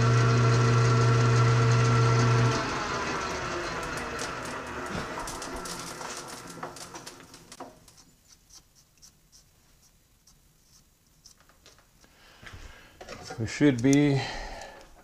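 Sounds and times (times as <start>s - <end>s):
metal lathe spinning down: 0.0s - 7.3s.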